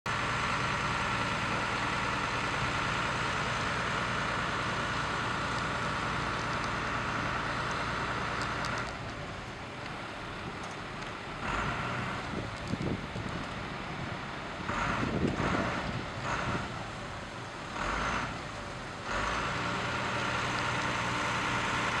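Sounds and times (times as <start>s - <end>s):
fire engines droning: 0.1s - 22.0s.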